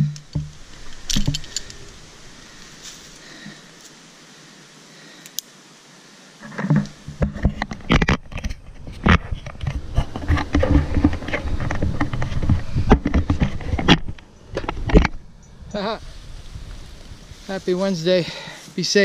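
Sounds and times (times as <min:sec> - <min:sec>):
low hiss: 0:00.0 - 0:07.2, 0:15.3 - 0:19.0.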